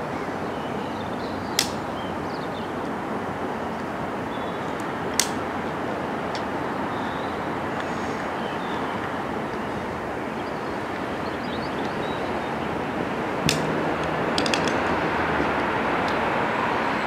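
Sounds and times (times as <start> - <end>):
sharp clicks: 1.6 - 1.8, 4.8 - 5.4, 13.5 - 14.9.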